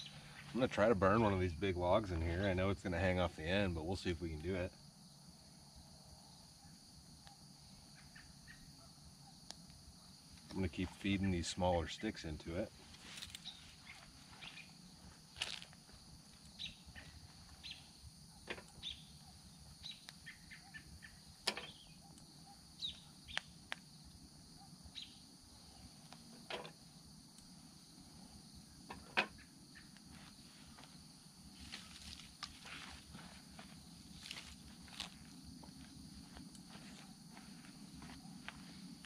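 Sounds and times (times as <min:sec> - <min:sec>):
twig fire crackling: 0:09.4 - 0:39.0.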